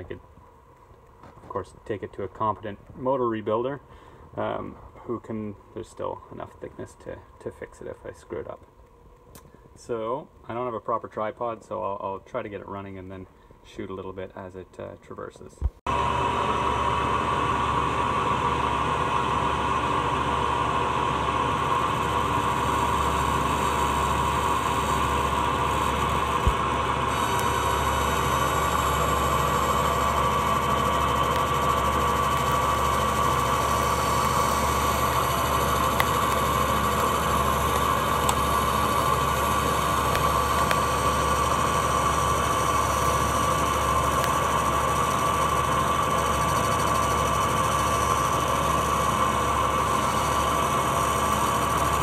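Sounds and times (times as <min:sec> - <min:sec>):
metal lathe running: 0:15.9 - 0:52.0
steady whine: 0:15.9 - 0:52.0.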